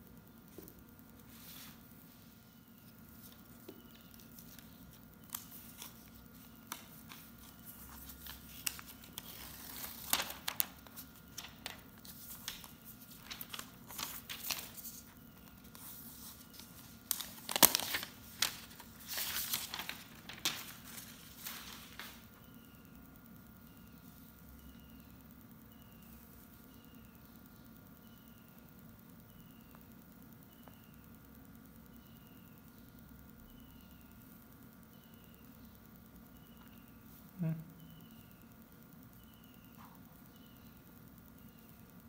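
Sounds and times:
paper rustling and tearing: 0:05.3 - 0:15.0, 0:15.8 - 0:22.2.

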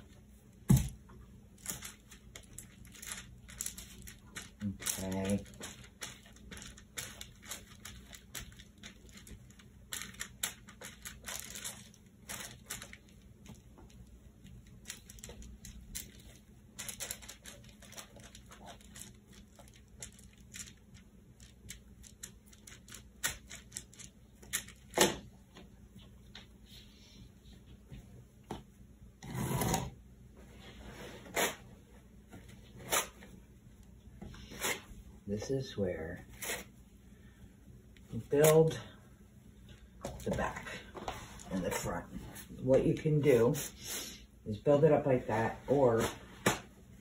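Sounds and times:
paper rustle: 0:01.6 - 0:25.1.

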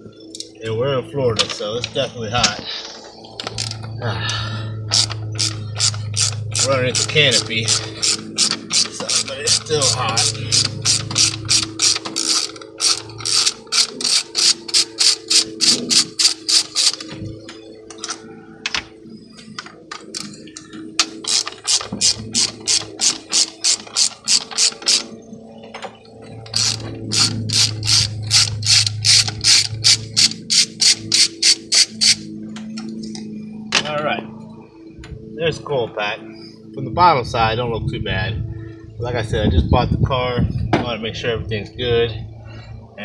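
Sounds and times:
hand ratchet clicking: 0:04.9 - 0:17.1, 0:19.9 - 0:20.4, 0:21.0 - 0:25.1, 0:26.5 - 0:32.3.

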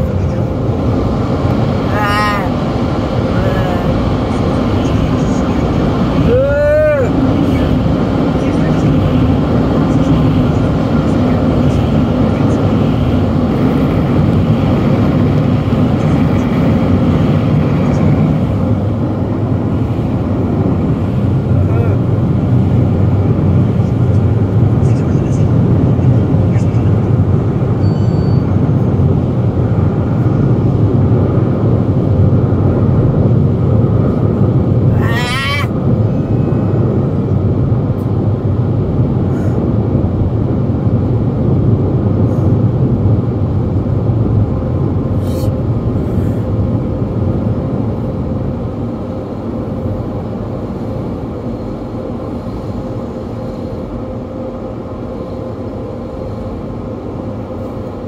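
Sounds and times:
car wash machinery roaring: 0:00.0 - 0:58.0
rising squeal: 0:27.7 - 0:28.8.

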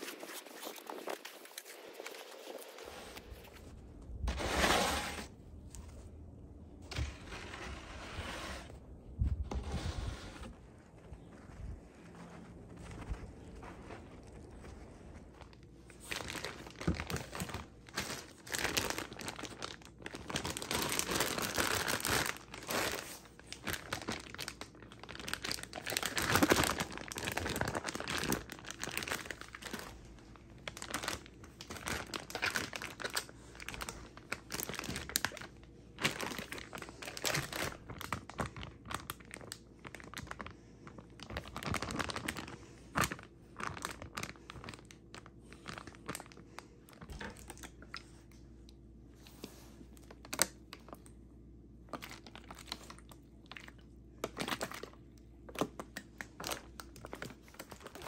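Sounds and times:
plastic bags crinkling: 0:00.0 - 0:03.7, 0:14.2 - 0:48.3, 0:50.0 - 0:51.0, 0:51.9 - 0:58.0.

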